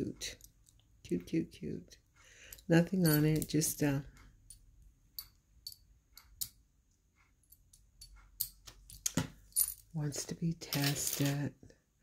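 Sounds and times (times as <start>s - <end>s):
metal jewelry clicking: 2.5s - 3.8s, 4.4s - 6.6s, 7.4s - 10.0s.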